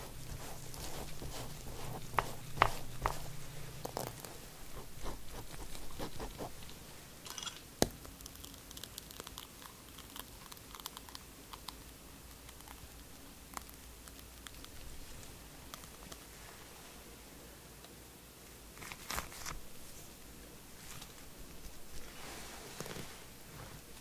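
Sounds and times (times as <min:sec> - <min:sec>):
pastry brush dabbing sponge cake: 0:00.0 - 0:07.0.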